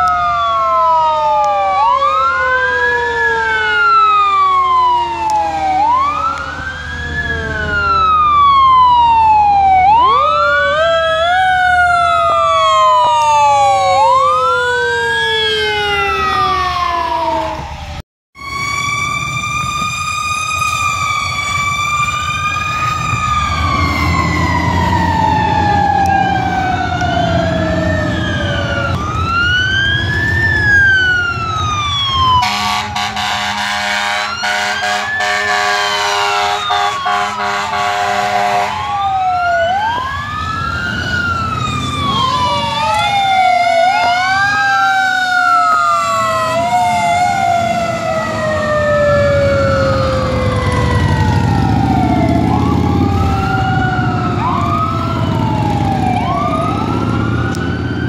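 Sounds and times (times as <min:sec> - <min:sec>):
fire engine sirens wailing: 0:00.0 - 0:58.0
air horn blast: 0:32.4 - 0:38.8.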